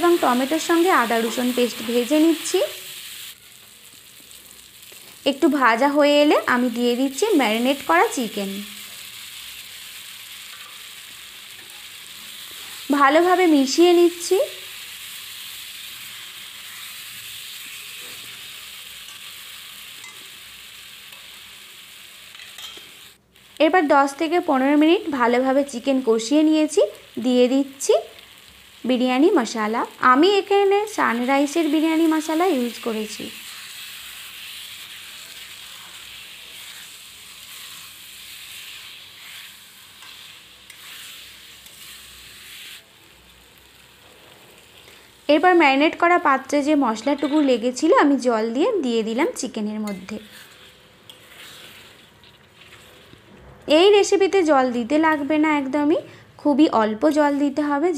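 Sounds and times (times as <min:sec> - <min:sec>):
chicken sizzling in hot oil: 0:00.0 - 0:53.3
spatula scraping pan: 0:33.4 - 0:42.8, 0:49.8 - 0:53.2.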